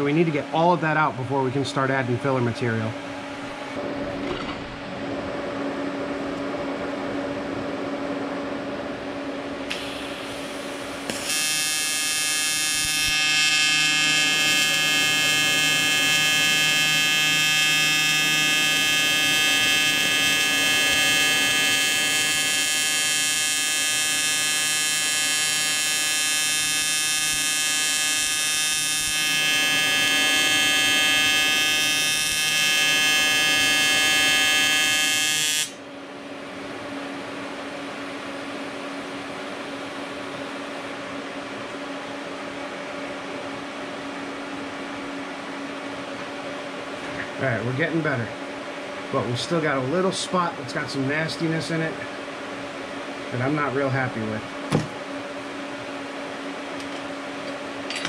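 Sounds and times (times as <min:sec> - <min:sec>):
welding arc buzzing: 0:09.6 - 0:35.8.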